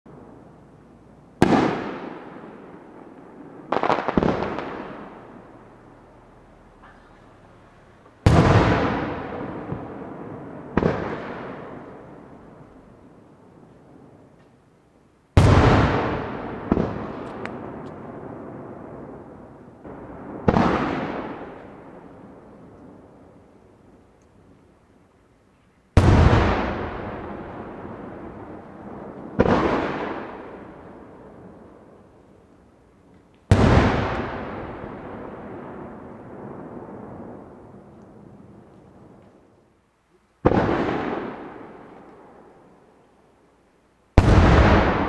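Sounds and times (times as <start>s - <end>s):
firework bang echoing: 1.4s - 2.6s, 3.6s - 5.3s, 8.2s - 12.0s, 15.4s - 19.3s, 19.9s - 21.8s, 26.0s - 30.8s, 33.5s - 37.6s, 40.4s - 41.9s, 44.2s - 45.0s
firework pops: 16.7s - 18.0s.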